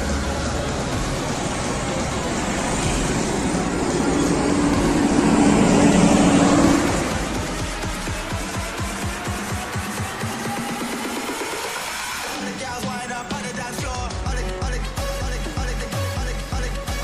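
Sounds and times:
bus driving past: 0:00.0 - 0:12.5
road traffic: 0:00.0 - 0:17.0.

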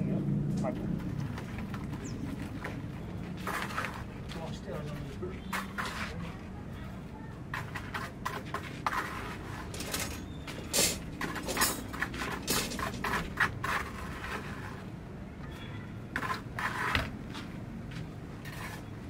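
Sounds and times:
hard objects knocking and clinking: 0:09.6 - 0:13.6.

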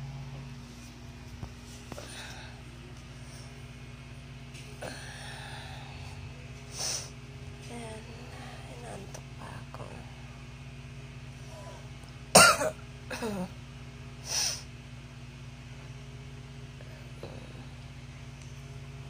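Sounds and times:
steady low hum: 0:00.0 - 0:19.0
woman coughing: 0:12.4 - 0:13.6.

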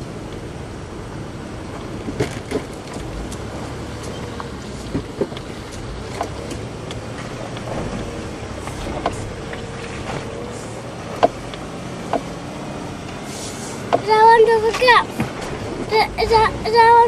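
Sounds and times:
engine and tyre rumble: 0:00.0 - 0:17.0
sharp suspension knocks: 0:01.8 - 0:10.4, 0:11.1 - 0:12.4.

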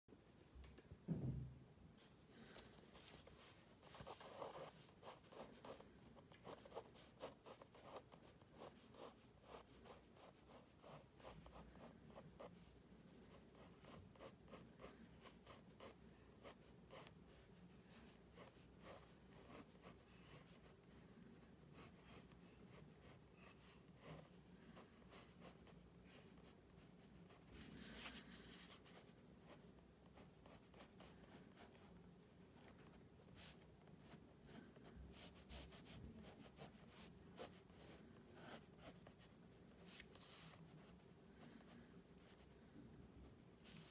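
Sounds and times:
pen scratching on paper: 0:03.0 - 0:05.8, 0:06.4 - 0:12.5, 0:13.3 - 0:17.4, 0:18.1 - 0:21.0, 0:21.7 - 0:31.8, 0:33.3 - 0:41.0.

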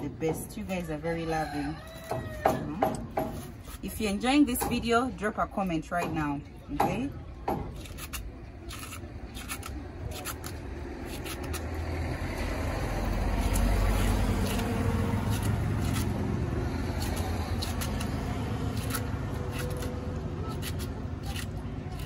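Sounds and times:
knife slicing cabbage: 0:07.6 - 0:22.0.

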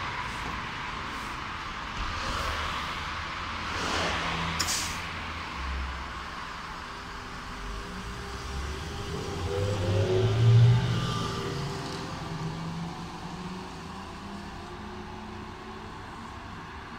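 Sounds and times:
trolleybus electric drive whine: 0:05.9 - 0:16.9.

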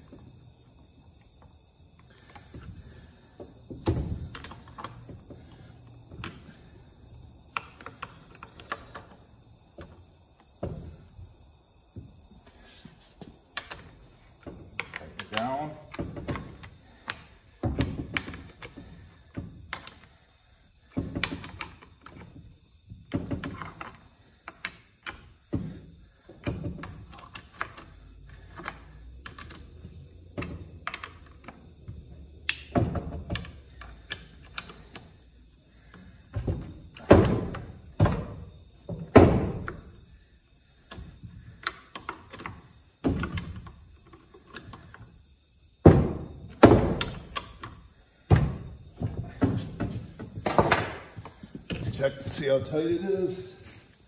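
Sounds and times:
wrench knocking and clicking: 0:20.9 - 0:22.3.

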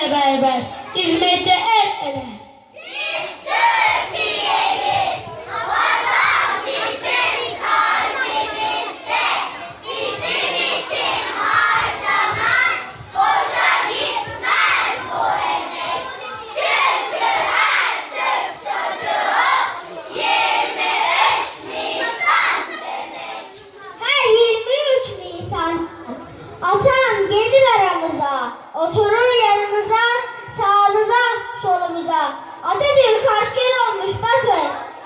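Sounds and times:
children's voices in unison: 0:02.7 - 0:35.0.

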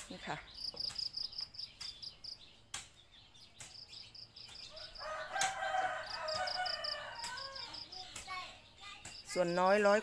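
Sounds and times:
insects chirping: 0:00.3 - 0:02.4, 0:03.8 - 0:09.9
rooster crowing: 0:04.7 - 0:07.8.

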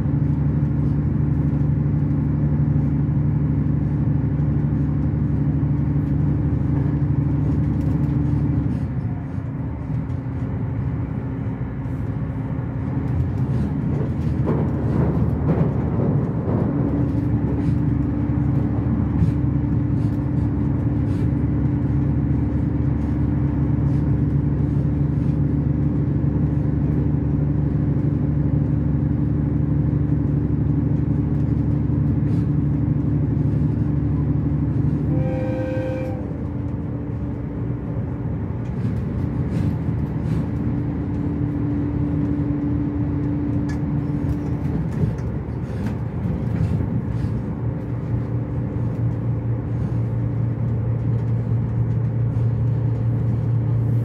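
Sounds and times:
train cabin rumble and hum: 0:00.0 - 0:54.0
train horn blast: 0:34.7 - 0:37.2
faint rail clicks: 0:38.6 - 0:53.8.

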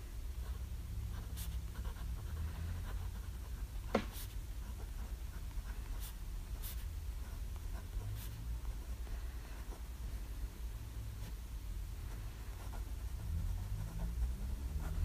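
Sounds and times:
steady low hum: 0:00.0 - 0:15.0
fountain pen scratching on paper: 0:00.4 - 0:08.4, 0:12.1 - 0:15.0.

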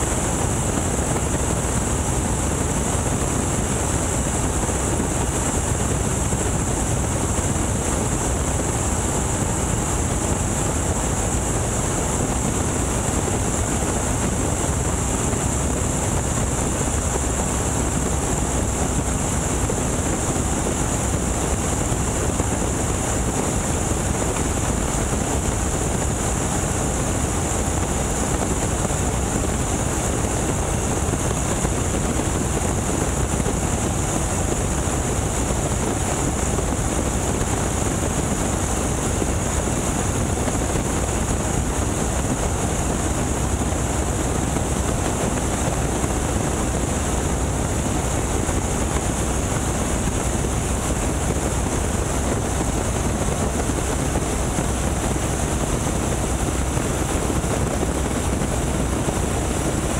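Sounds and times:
biplane radial engine running: 0:00.0 - 0:59.9
wind rushing on microphone: 0:00.0 - 0:59.9.

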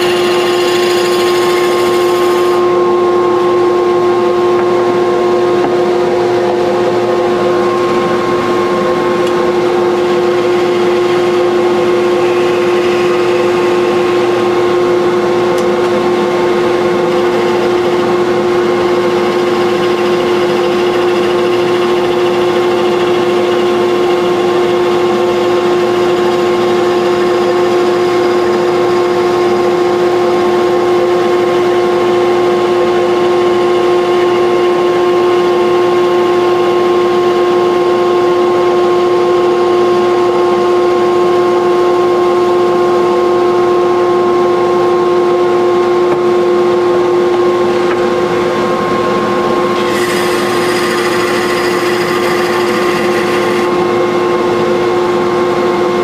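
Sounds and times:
turning tool cutting wood: 0:00.0 - 0:02.7, 0:07.9 - 0:29.8, 0:49.6 - 0:54.2
lathe motor whine: 0:00.0 - 0:56.0.

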